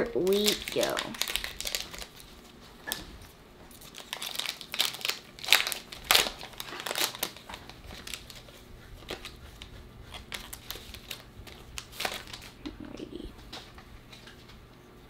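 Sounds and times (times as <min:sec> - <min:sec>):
wrapper tearing and crinkling: 0:00.1 - 0:03.0, 0:03.7 - 0:08.4, 0:10.2 - 0:12.6.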